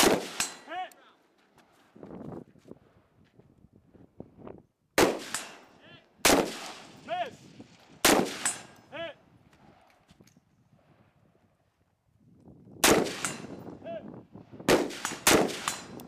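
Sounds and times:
rifle shots: 0.0 - 0.7, 5.0 - 7.1, 8.0 - 8.8, 12.8 - 13.6, 14.7 - 16.0.

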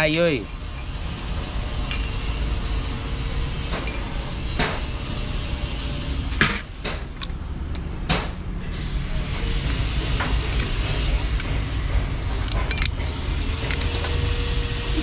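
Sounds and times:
wrench clinking on metal bolts: 12.4 - 13.0.

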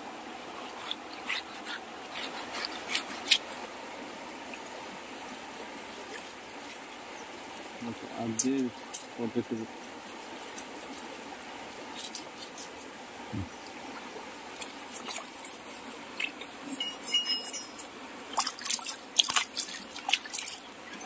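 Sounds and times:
river water lapping and trickling: 0.0 - 21.0
small splashes and drips: 4.4 - 7.7, 11.9 - 12.8, 13.5 - 21.0.

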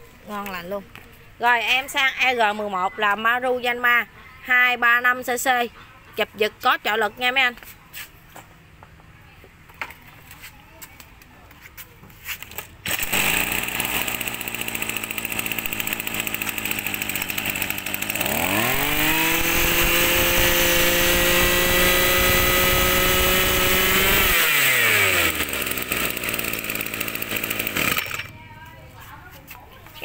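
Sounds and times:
brush-cutter engine revving: 12.5 - 28.4.

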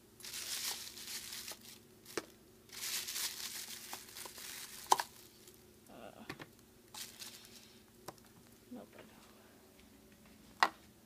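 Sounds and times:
plastic bag rustling: 0.2 - 5.6, 6.9 - 7.8.

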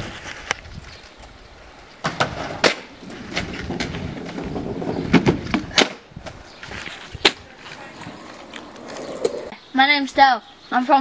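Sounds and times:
skateboard wheels rumbling on concrete: 2.0 - 9.6.

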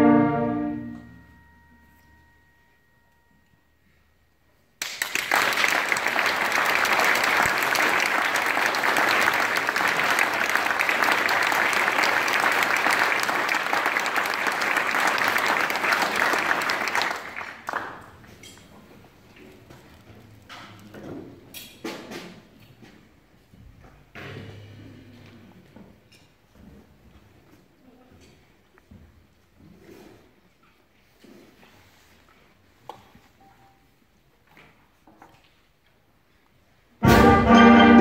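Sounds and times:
audience applause: 4.8 - 18.1.

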